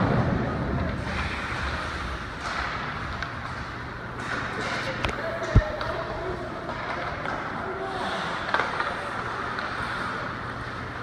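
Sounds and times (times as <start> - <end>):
skating and hockey play: 0.0 - 11.0.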